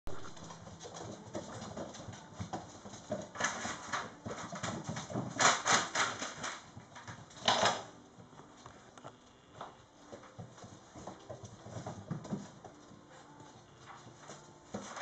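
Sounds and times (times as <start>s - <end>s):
puppy claws clicking on wooden floor: 0.1s - 7.9s.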